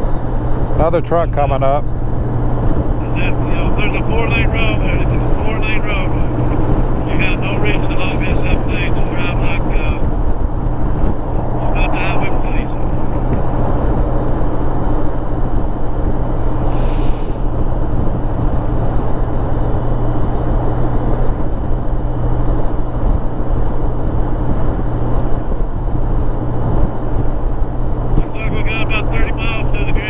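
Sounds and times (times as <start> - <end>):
motorcycle engine hum: 0.0 - 30.0
wind and road noise: 0.0 - 30.0
brief hiss: 16.7 - 17.4.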